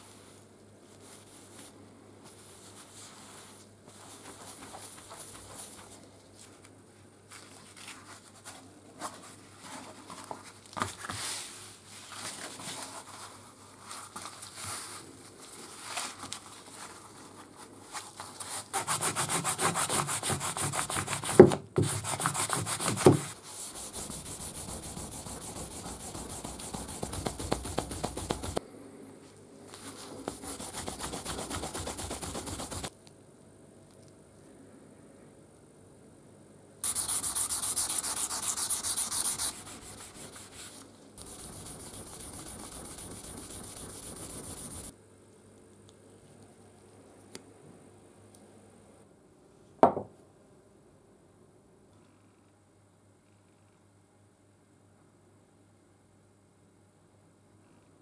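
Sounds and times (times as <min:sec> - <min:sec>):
cloth rubbing on metal: 0:22.0 - 0:28.6, 0:29.8 - 0:32.9, 0:36.8 - 0:44.9.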